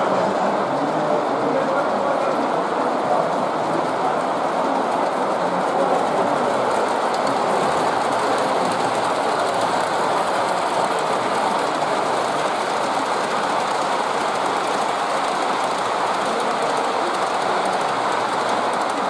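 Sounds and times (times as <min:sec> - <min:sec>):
model train rolling on track: 0:00.0 - 0:19.0.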